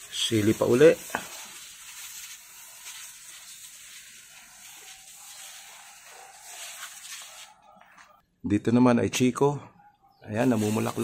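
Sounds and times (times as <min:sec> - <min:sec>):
sprayer hissing: 0:00.0 - 0:07.6, 0:10.4 - 0:11.0.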